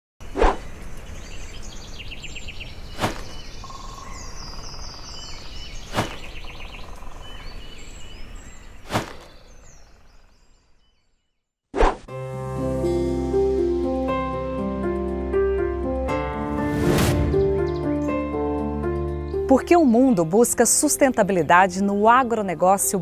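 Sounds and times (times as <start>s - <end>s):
birds chirping and trilling: 0.2s - 11.5s, 16.6s - 23.0s.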